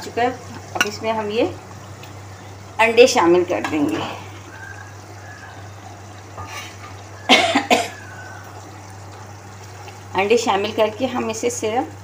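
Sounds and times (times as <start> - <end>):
person coughing: 7.3 - 8.0.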